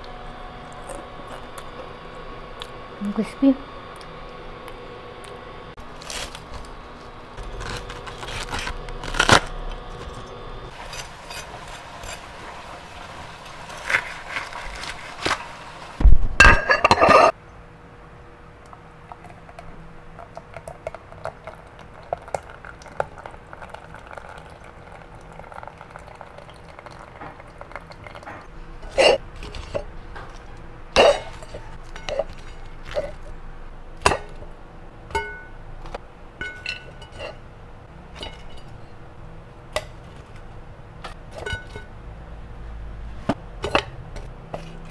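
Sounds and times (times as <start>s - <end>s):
knife crunching through crust: 6.0s - 6.7s, 7.4s - 10.2s.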